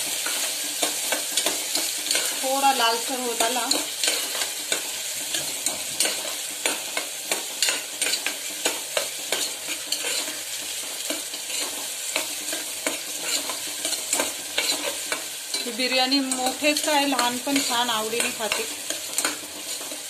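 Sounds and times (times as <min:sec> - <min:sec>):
onion sizzling in hot oil: 0:00.0 - 0:20.0
spoon scraping and knocking pot: 0:03.4 - 0:10.4, 0:11.1 - 0:20.0.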